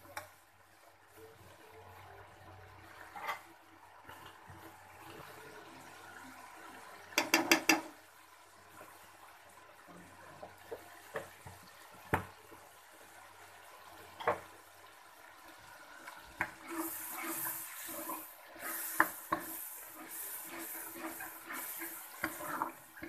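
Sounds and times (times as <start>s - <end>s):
sizzling hiss: 3.9s - 23.0s
metal clicking on pot: 7.2s - 7.9s.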